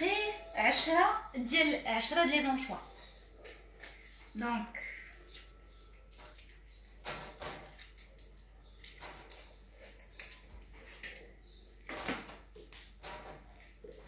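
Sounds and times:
kitchen items knocking and rustling: 7.0s - 8.0s, 11.9s - 14.0s.

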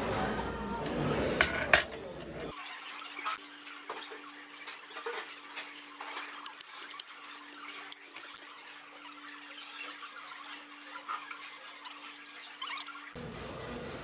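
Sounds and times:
utensils scraping metal bowl: 2.5s - 13.2s.

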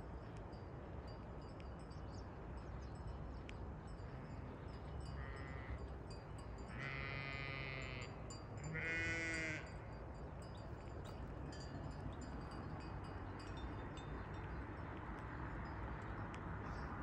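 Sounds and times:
sheep bleating: 6.7s - 8.0s, 8.7s - 9.7s.

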